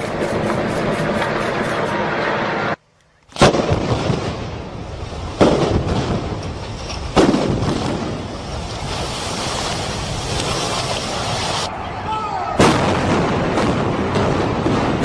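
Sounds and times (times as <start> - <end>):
demolition blasts: 3.4 - 11.7, 12.6 - 15.0.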